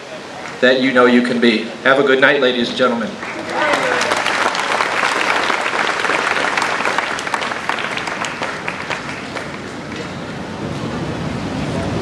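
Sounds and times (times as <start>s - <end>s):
audience applauding: 3.1s - 10.2s.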